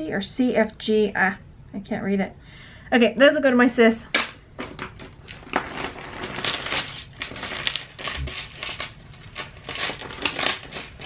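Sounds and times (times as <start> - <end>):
metal chains clinking: 5.6 - 11.0.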